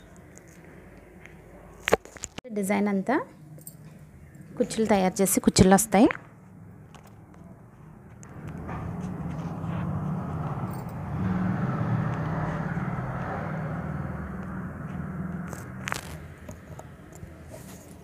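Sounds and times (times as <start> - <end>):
low rumbling scraping noise: 8.2 - 16.3.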